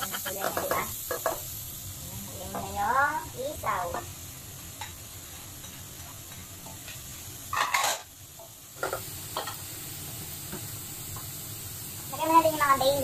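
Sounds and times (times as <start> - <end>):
meat sizzling in a pot: 0.0 - 13.0.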